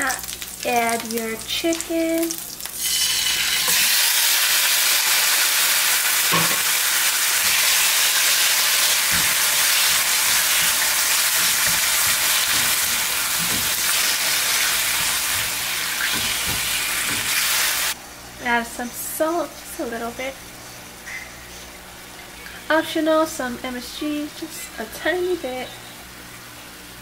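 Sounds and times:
chicken sizzling in frying pan: 0.0s - 18.0s.

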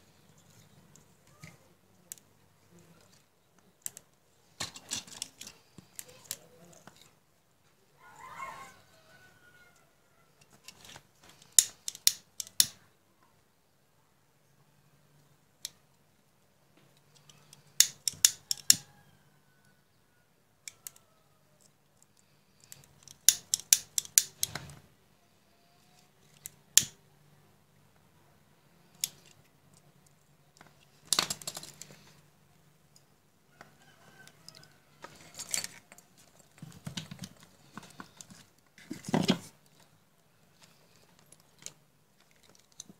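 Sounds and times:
hand tools snipping wire: 10.7s - 12.8s, 17.3s - 18.8s, 22.6s - 24.8s, 26.4s - 27.0s.

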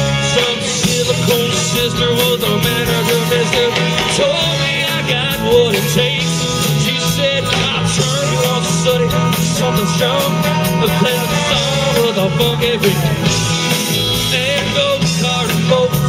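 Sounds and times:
lead singer singing: 0.0s - 16.0s
live rock band playing: 0.0s - 16.0s.

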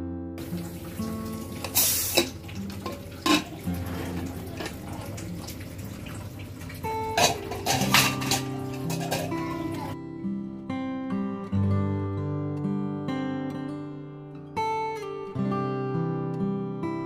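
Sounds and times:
soft acoustic guitar music: 0.0s - 17.0s
ladle clinking against pot: 1.6s - 4.9s, 7.1s - 10.0s
pot lid clanking and scraping: 1.6s - 4.9s, 7.1s - 10.0s.

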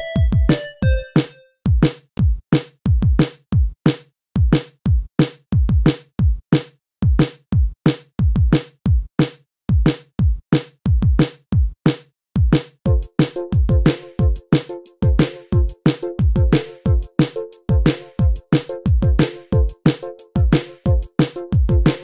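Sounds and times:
electronic music: 0.0s - 1.5s, 12.9s - 22.0s
deep kick drums: 15.0s - 17.1s, 20.4s - 21.9s.

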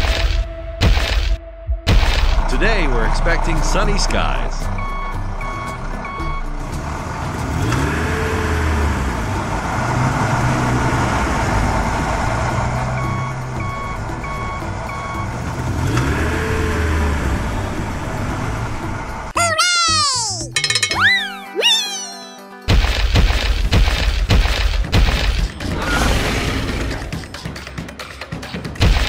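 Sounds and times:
diesel engine rumble: 1.9s - 19.4s
reversing alarm beeping: 4.7s - 6.6s, 13.0s - 15.4s.

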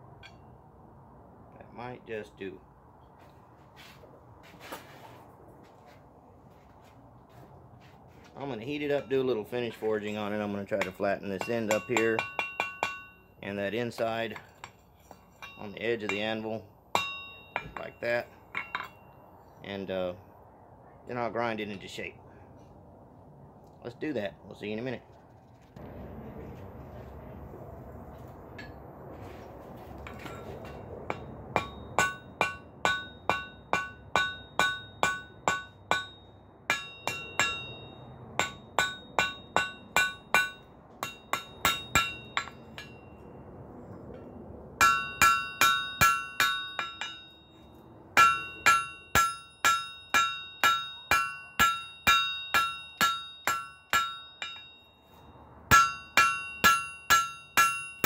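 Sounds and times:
hammer striking steel on anvil: 0.2s - 0.4s, 8.8s - 13.2s, 13.9s - 19.2s, 30.0s - 43.1s, 44.8s - 58.0s.

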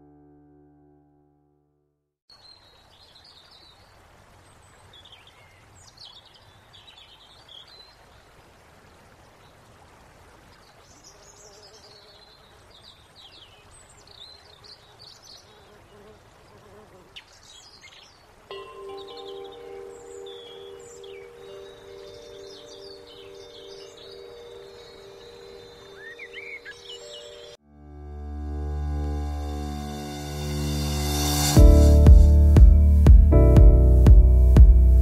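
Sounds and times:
faint background hiss: 2.3s - 27.6s
small birds chirping: 10.4s - 27.6s
chiming music: 18.5s - 28.1s.

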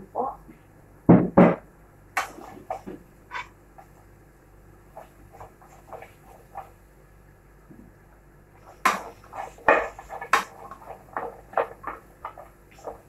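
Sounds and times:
wooden spatula clacking on pan: 8.8s - 13.0s.

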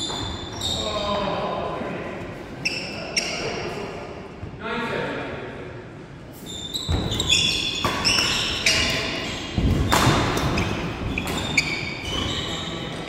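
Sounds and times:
shoes squeaking on wooden floor: 0.0s - 1.0s, 6.4s - 13.0s
racket hitting shuttlecock: 9.6s - 11.6s.

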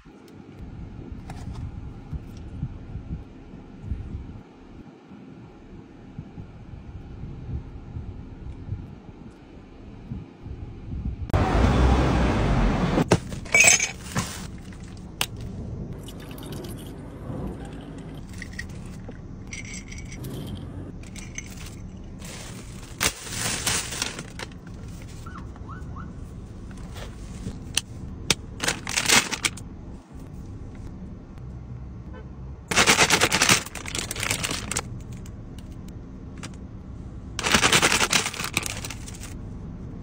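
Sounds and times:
plastic bags crinkling: 21.1s - 25.3s, 28.6s - 29.6s, 32.7s - 34.9s, 37.4s - 39.4s.

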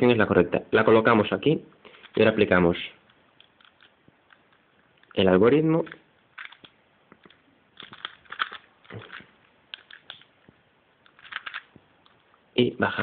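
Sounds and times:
plastic puzzle clicking as twisted: 3.4s - 5.2s, 5.8s - 10.3s, 11.0s - 12.2s.

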